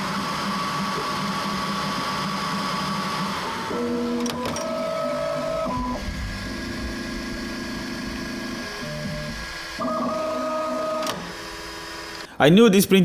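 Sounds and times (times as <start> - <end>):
stepper motors whining: 2.1 - 12.3.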